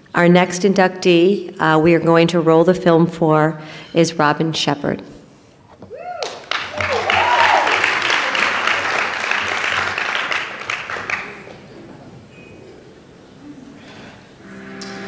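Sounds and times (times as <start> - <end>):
audience applauding: 6.1 - 11.7.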